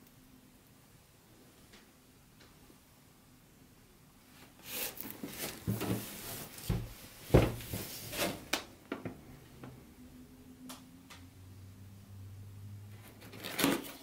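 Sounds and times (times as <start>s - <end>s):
cardboard scraping and rustling: 4.6s - 8.5s, 13.0s - 14.0s.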